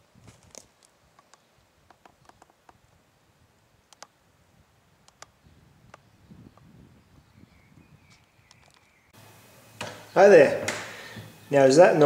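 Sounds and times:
faint sharp clicks: 3.9s - 4.1s, 5.0s - 6.0s.

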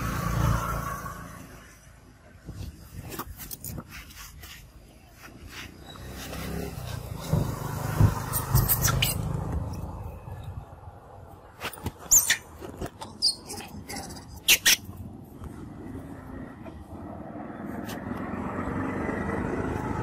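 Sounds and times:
high squeaks and clicks: 8.2s - 9.8s, 11.7s - 15.1s.

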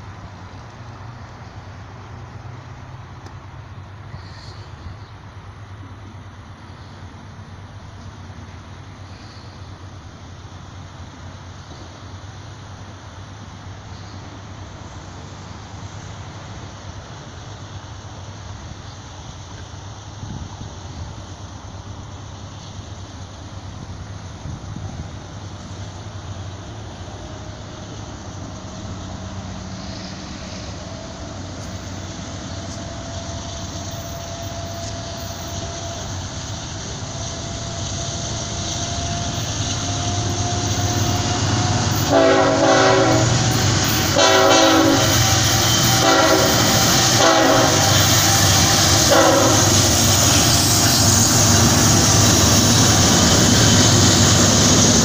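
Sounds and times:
diesel locomotive passing: 0.0s - 55.0s
train horn blasts: 32.5s - 36.2s, 39.0s - 51.0s.

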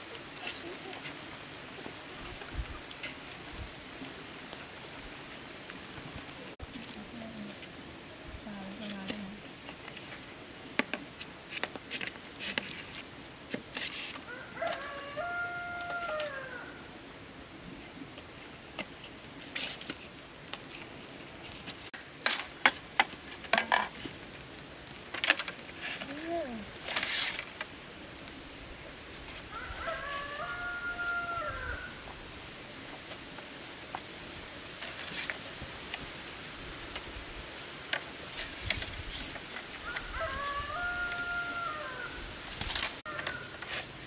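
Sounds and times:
rooster crowing: 14.2s - 16.8s, 29.5s - 32.1s, 39.8s - 42.2s.

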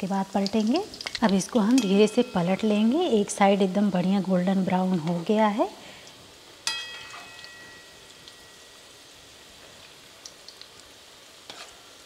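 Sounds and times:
oil sizzling and bubbling: 0.0s - 12.0s
spoon clinking metal pan: 1.7s - 2.9s, 6.6s - 8.6s.

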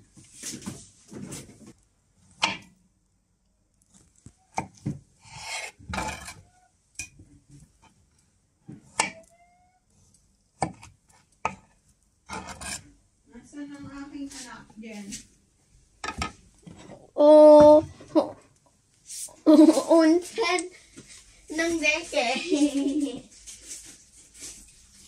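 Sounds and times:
knife scraping: 5.2s - 6.6s, 12.3s - 12.9s.

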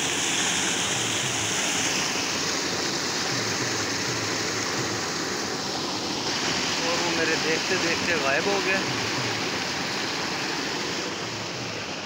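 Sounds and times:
stream rushing over stones: 0.0s - 12.0s.

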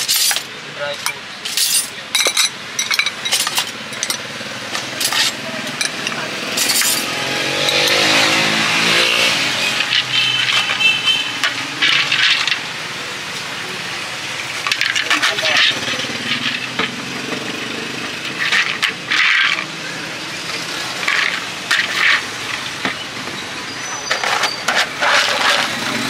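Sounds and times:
utensils clinking: 0.0s - 13.7s, 14.4s - 26.0s
vehicle engine passing: 3.6s - 10.6s.

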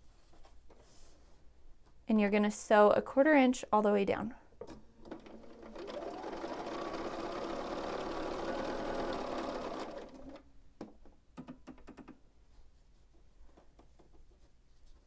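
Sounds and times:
sewing machine running: 5.0s - 10.4s.

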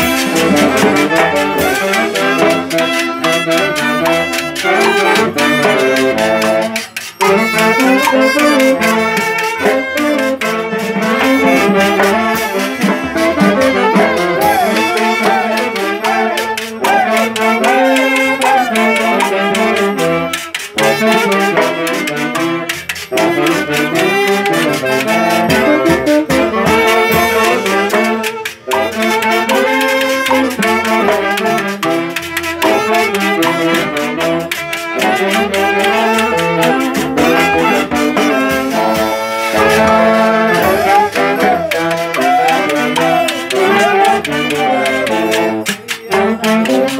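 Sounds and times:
saxophone section melody: 0.0s - 46.9s
snare drum and cymbal: 0.0s - 46.9s.

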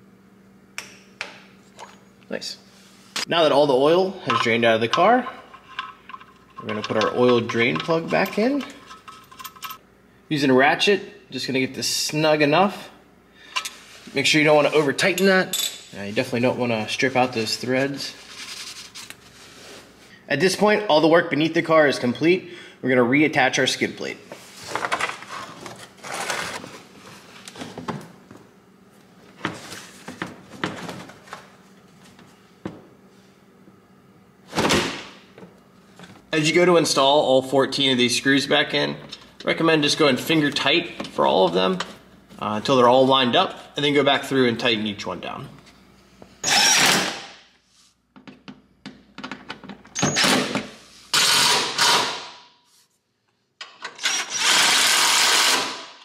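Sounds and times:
impact driver running: 51.2s - 52.2s, 54.1s - 56.0s.

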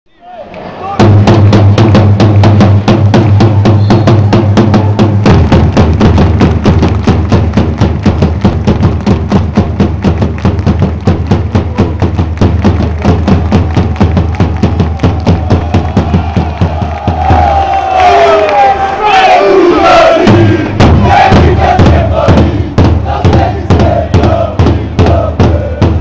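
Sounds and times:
bass drum beating: 1.0s - 18.4s, 19.8s - 26.0s
crowd clapping in time: 3.1s - 19.1s
crowd chanting: 15.4s - 26.0s.

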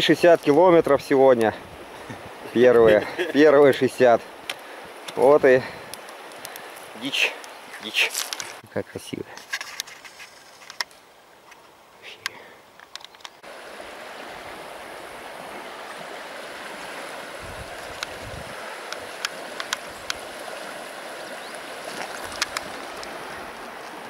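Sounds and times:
river water rushing: 13.4s - 24.0s.

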